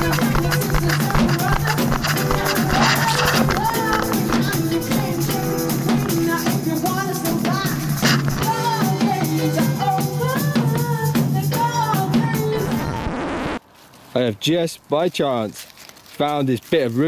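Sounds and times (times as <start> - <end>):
steady drum beat: 0.0 - 13.0.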